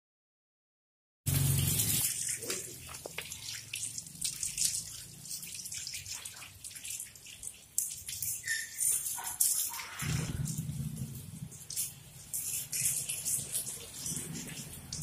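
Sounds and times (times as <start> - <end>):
hose water spattering: 1.3 - 15.0.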